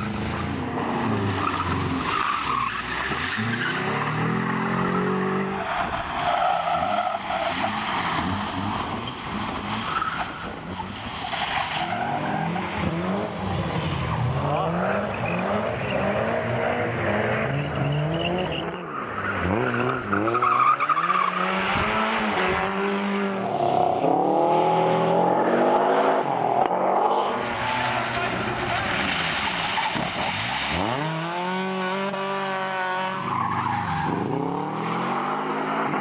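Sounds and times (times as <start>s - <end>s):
rally car engines revving: 0.0s - 36.0s
tyres splashing over slush: 27.6s - 31.8s.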